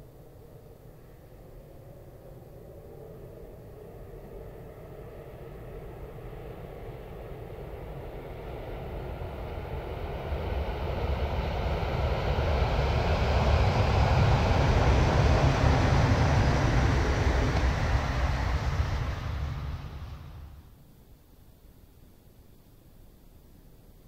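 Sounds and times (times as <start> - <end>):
high-speed train rushing past: 6.6 - 20.7.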